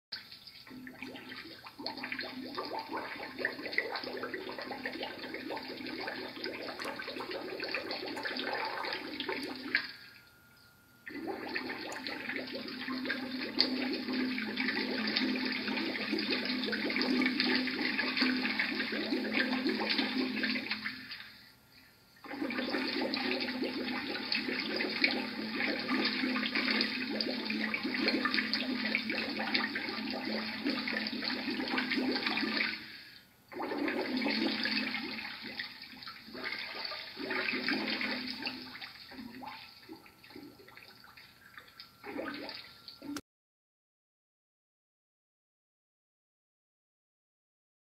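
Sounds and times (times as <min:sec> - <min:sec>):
bubbling rushing water: 0:00.6 - 0:09.8, 0:11.1 - 0:21.0, 0:22.3 - 0:32.8, 0:36.2 - 0:39.6.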